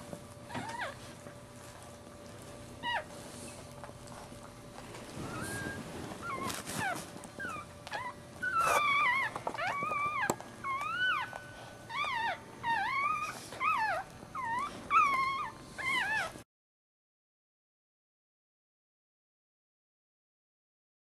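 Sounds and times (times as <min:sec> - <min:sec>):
puppy crying squeakily: 0:05.2 - 0:16.3.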